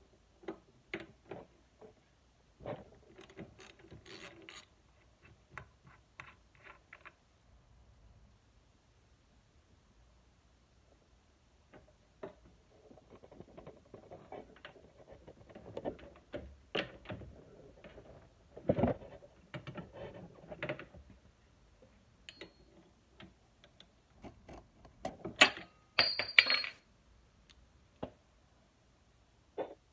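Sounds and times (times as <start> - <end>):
metal tools clinking and scraping: 25.4 - 26.8.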